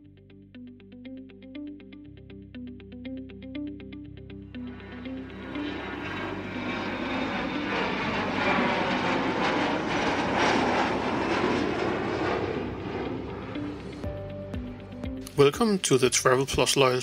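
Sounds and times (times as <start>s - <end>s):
airplane flying past: 4.6s - 15.4s.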